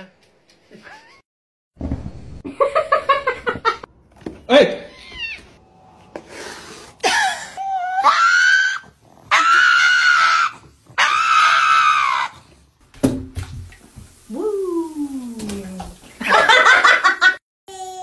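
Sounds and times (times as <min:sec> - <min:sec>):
dog howling: 0:07.6 - 0:12.4.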